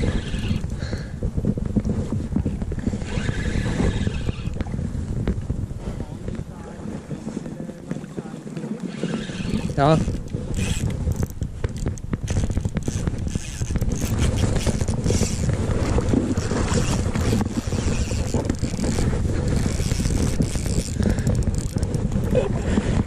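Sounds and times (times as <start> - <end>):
fishing reel spinning: 0.0 - 0.7, 2.8 - 4.6, 8.8 - 22.5
low wind rumble: 0.0 - 23.0.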